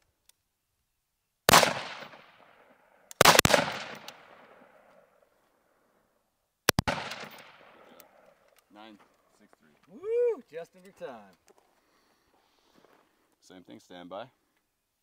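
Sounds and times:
rifle shots with ringing echo: 1.5s - 5.2s, 6.7s - 8.4s.

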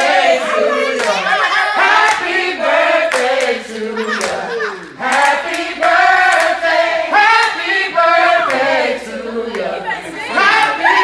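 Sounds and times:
group singing in chorus: 0.0s - 11.0s
hand clapping: 1.0s - 1.2s, 3.1s - 6.6s.

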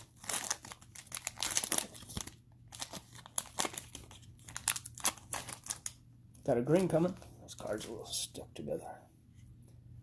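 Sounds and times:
foil wrapper crinkling and tearing: 0.0s - 6.0s.

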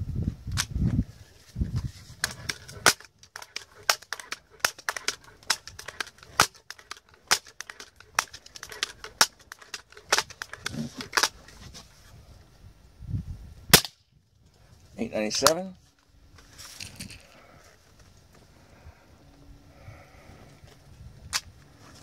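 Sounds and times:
air rifle pump lever clicking: 2.2s - 11.4s.

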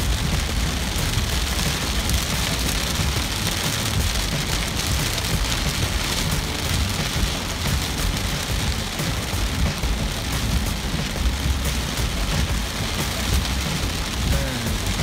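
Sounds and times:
heavy rain on car windshield: 0.0s - 15.0s
low rumble of moving car: 0.0s - 15.0s.

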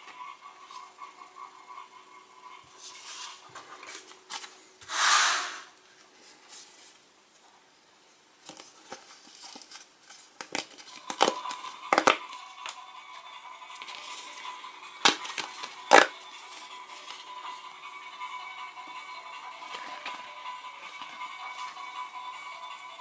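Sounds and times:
packet crinkling and clicking: 10.4s - 12.2s.

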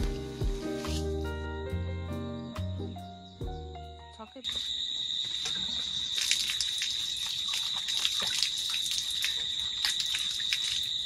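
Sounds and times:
water dripping: 4.4s - 11.0s
water running from a tap: 5.5s - 11.0s.

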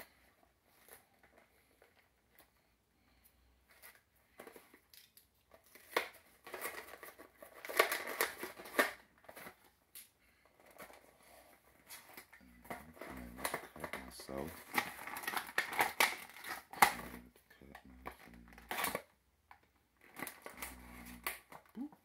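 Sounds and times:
plastic packaging crinkling: 3.7s - 19.1s, 20.0s - 22.0s
sharp plastic crack: 4.4s - 10.1s, 11.9s - 17.2s.

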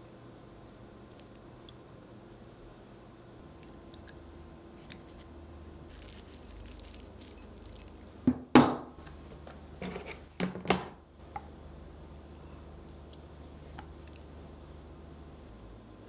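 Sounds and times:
chopsticks clinking on glass container: 5.9s - 8.0s.

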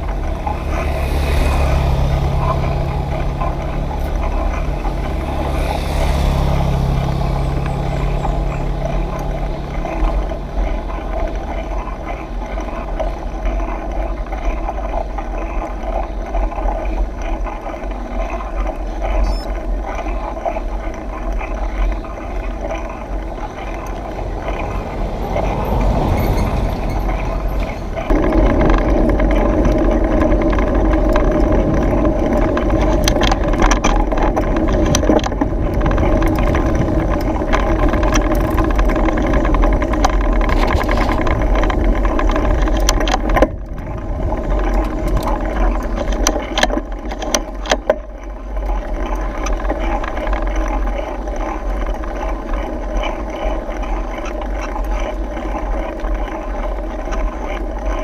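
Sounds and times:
tyre rumble: 0.0s - 58.0s
wind noise: 18.0s - 58.0s
bike rattling clicks: 20.9s - 58.0s.

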